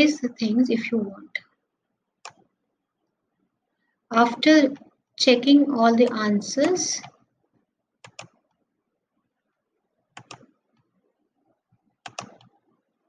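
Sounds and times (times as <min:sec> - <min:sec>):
computer mouse clicking: 0:02.2 - 0:02.5, 0:06.0 - 0:07.2, 0:08.0 - 0:08.6, 0:10.1 - 0:10.9, 0:12.0 - 0:12.7.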